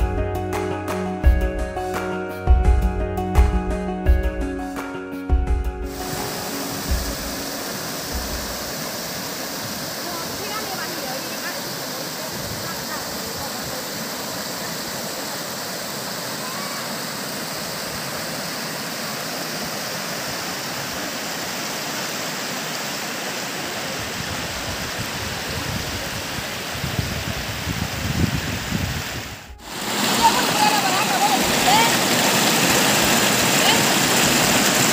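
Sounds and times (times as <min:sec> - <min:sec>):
river rapids rushing over rocks: 0:05.9 - 0:25.5, 0:29.6 - 0:34.9.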